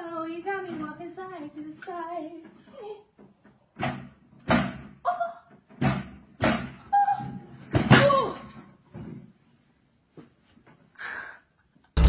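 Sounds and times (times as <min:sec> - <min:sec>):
exercise bike banging on floor: 0:05.7 - 0:06.8.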